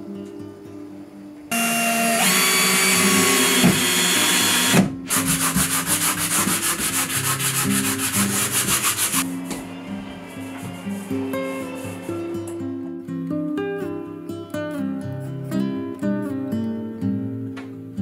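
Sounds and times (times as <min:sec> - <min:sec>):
cordless drill whining: 0:01.5 - 0:04.9
sanding block rubbing drywall: 0:03.8 - 0:09.3.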